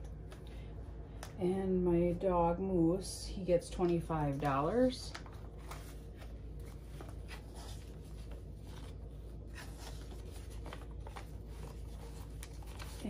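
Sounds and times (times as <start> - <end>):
banknotes rustling and crinkling: 3.8 - 13.0.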